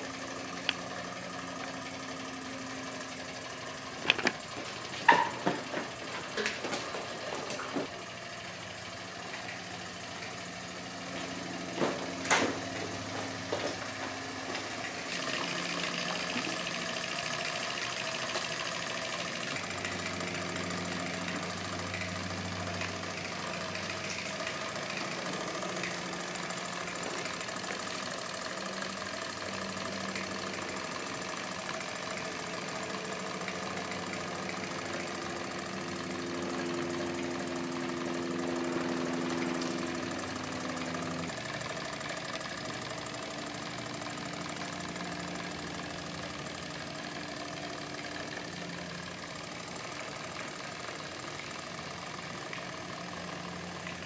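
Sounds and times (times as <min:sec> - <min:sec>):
small steam engine running: 0:00.0 - 0:54.0.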